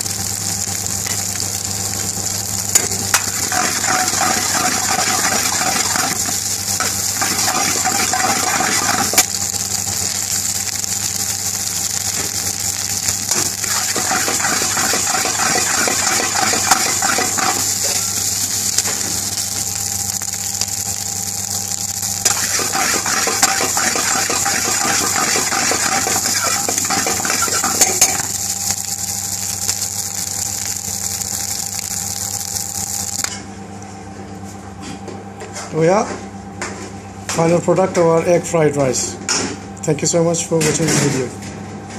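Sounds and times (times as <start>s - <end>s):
rice sizzling in a wok: 0.0s - 33.5s
utensil scraping against wok: 3.2s - 9.3s, 13.3s - 18.3s, 22.3s - 28.3s.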